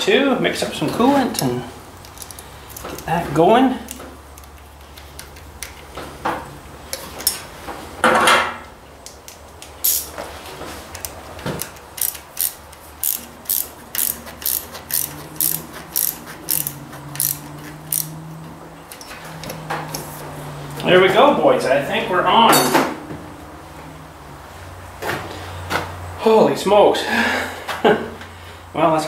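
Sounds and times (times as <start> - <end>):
ratchet clicking: 2.0 - 3.0, 9.8 - 10.1, 10.9 - 18.1.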